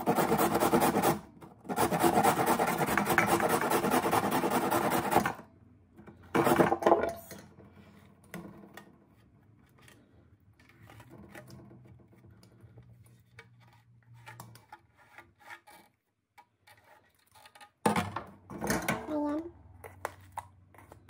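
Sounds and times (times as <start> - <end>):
grater scraping metal bowl: 0.0 - 5.4.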